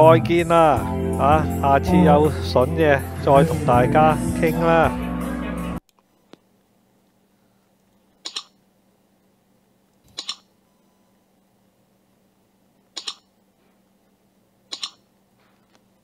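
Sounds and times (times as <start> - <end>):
faint steady hum: 5.8 - 16.0
computer mouse clicks: 8.2 - 8.6, 10.0 - 10.5, 12.9 - 13.3, 14.7 - 15.0.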